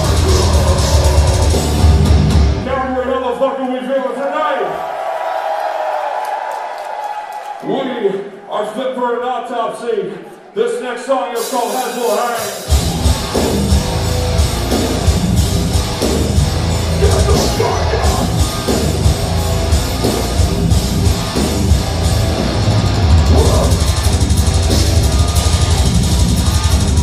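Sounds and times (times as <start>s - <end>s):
metal band playing live: 0.0s - 2.7s, 11.4s - 27.0s.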